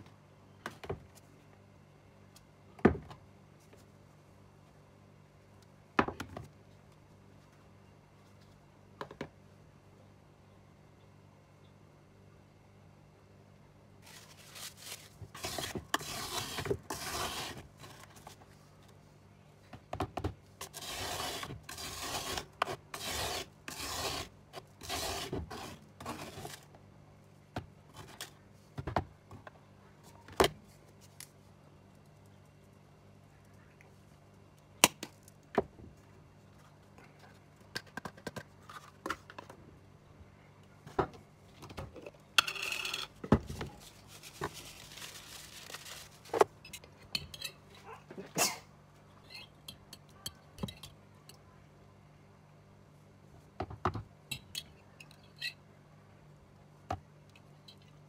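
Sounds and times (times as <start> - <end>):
metal spoon scraping grainy paste: 15.4 - 17.6, 20.6 - 26.6.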